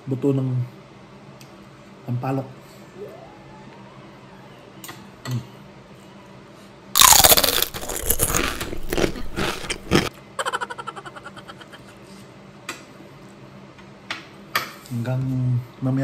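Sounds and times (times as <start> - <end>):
loud crunching of food: 7.0 - 10.1.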